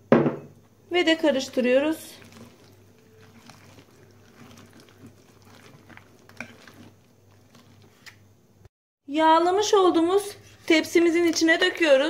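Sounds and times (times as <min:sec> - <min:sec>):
wet squelching of batter: 0:01.0 - 0:08.4.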